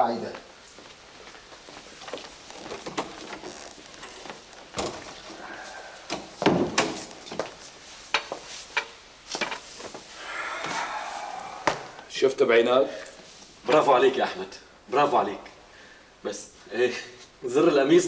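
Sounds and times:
furniture knocks and thuds: 6.3s - 7.6s.

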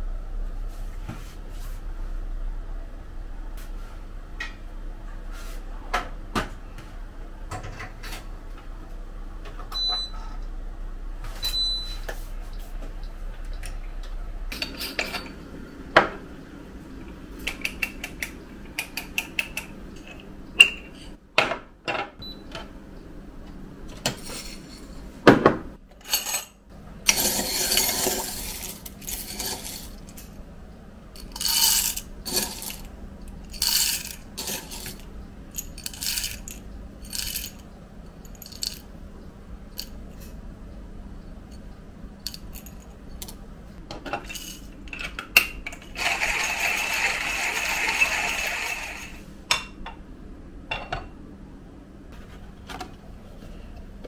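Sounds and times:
dishes and utensils clinking: 14.5s - 15.4s.

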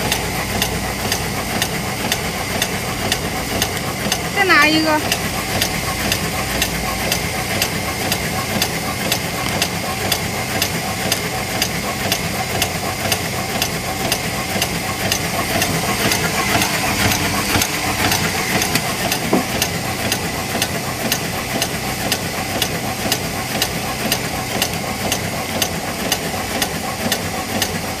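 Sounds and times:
machine clicking: 0.0s - 4.3s, 5.0s - 27.9s
machine mechanical hum: 0.0s - 28.0s.

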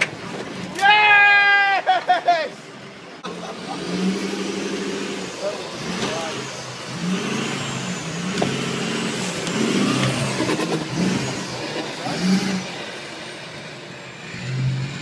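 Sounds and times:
truck engine revving hard: 3.2s - 15.0s.

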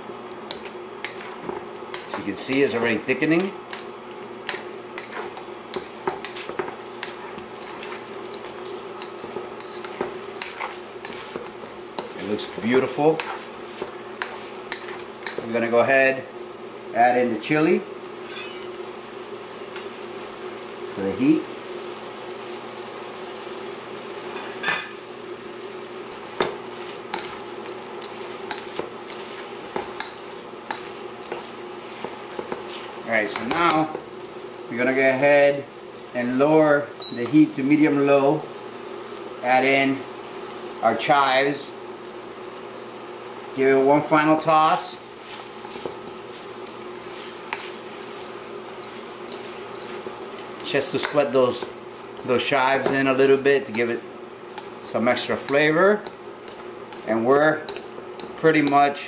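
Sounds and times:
induction cooker buzzing hum: 0.0s - 59.0s
spoon scraping a wok: 0.4s - 15.5s, 18.2s - 18.8s, 26.0s - 34.1s, 45.2s - 58.8s.

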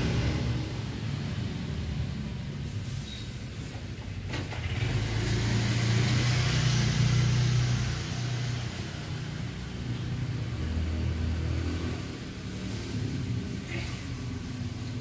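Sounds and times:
vehicle engine humming: 0.0s - 15.0s
hiss: 2.5s - 9.5s, 10.7s - 15.0s.

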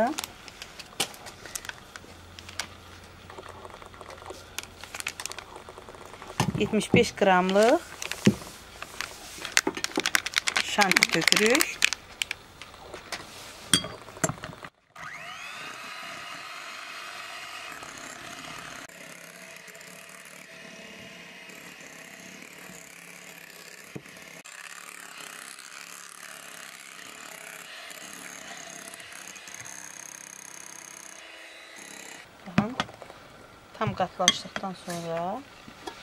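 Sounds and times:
mixer clicks: 9.5s - 12.8s
electric hand mixer whirring: 14.9s - 32.3s.

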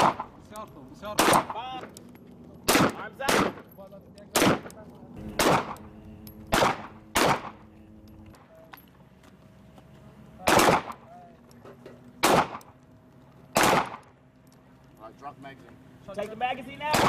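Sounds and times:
pistol shots: 0.0s - 0.4s, 1.2s - 1.6s, 2.6s - 3.7s, 4.3s - 7.7s, 10.4s - 11.1s, 12.2s - 12.7s, 13.5s - 14.1s.

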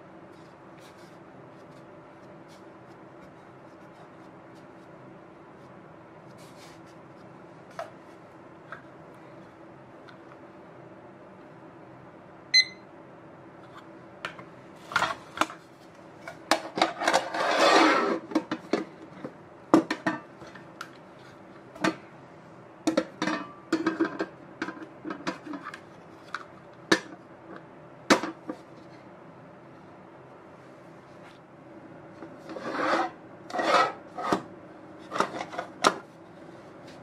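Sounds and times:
kitchen timer beep: 12.5s - 12.8s
metal lid scraping: 17.0s - 18.3s, 32.5s - 34.4s.

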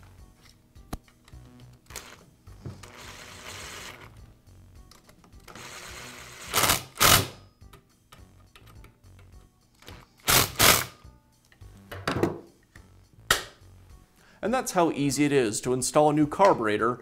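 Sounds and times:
electric screwdriver whirring: 2.8s - 4.1s, 5.5s - 7.4s, 10.2s - 11.0s.

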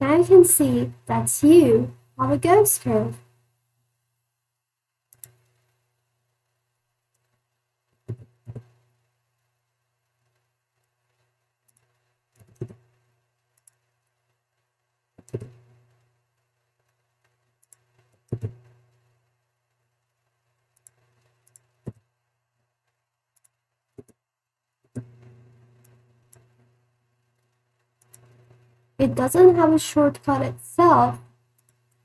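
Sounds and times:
mouse and keyboard clicks: 5.1s - 5.4s.

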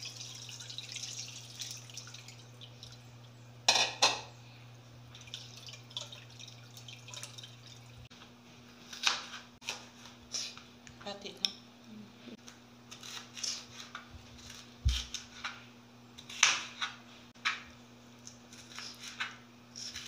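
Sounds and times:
liquid dripping through strainer: 0.0s - 3.3s, 5.1s - 8.1s.

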